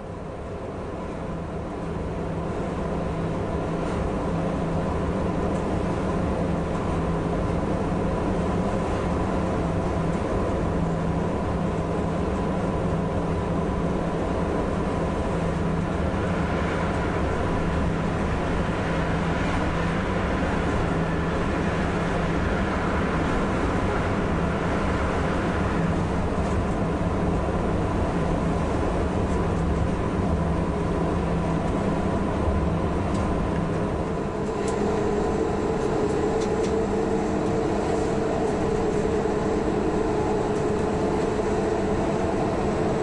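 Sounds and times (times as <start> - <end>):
electric locomotive hum: 0.0 - 43.0
wheels rumbling on rail: 0.0 - 43.0
passing freight train rushing: 14.8 - 29.2, 30.0 - 43.0.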